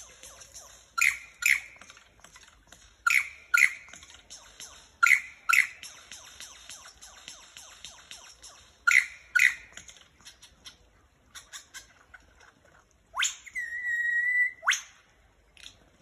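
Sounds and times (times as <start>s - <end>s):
lyrebird singing: 0.0s - 2.0s, 3.0s - 12.0s, 13.2s - 14.8s.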